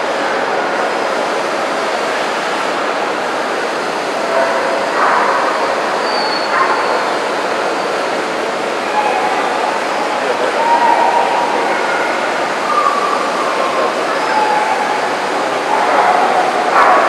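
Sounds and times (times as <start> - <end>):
indoor crowd hubbub: 0.0 - 17.0
dog bark: 4.3 - 7.2, 15.7 - 17.0.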